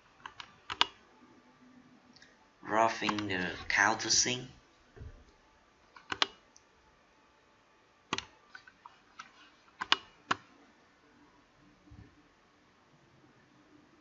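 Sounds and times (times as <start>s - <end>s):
computer mouse clicks: 0.2s - 1.0s, 3.0s - 3.3s, 6.0s - 6.7s, 8.1s - 10.5s.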